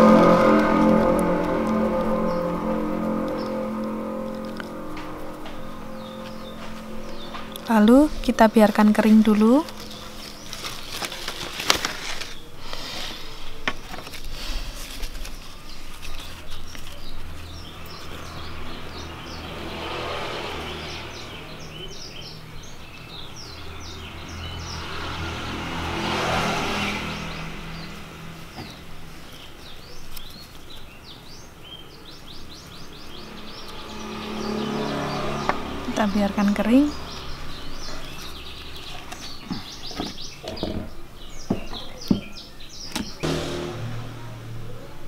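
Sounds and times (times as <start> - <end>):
low steady hum: 0.0 - 12.4
vehicle passing: 0.0 - 41.4, 42.6 - 45.0
small birds chirping: 1.5 - 25.6, 26.6 - 43.3.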